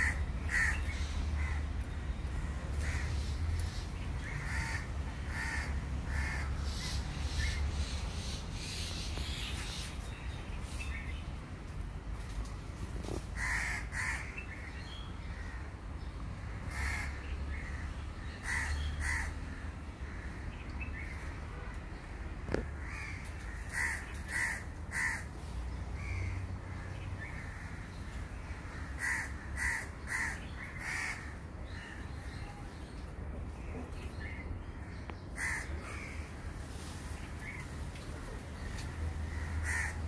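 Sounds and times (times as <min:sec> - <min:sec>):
crows cawing: 0:00.0 - 0:01.8, 0:02.4 - 0:03.4, 0:04.2 - 0:07.0, 0:13.3 - 0:14.4, 0:16.7 - 0:20.5, 0:22.5 - 0:25.4, 0:26.0 - 0:32.0, 0:34.8 - 0:36.3, 0:38.6 - 0:40.0.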